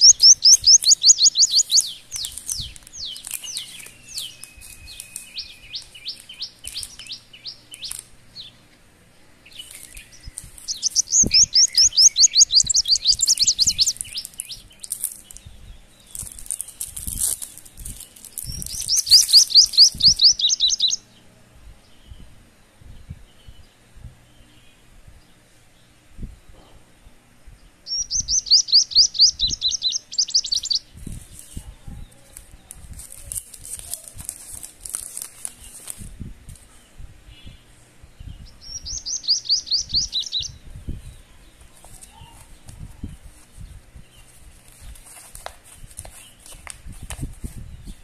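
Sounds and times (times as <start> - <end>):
bird trilling chirps: 0.0 - 8.7, 9.4 - 21.2, 27.8 - 32.3, 36.8 - 45.4.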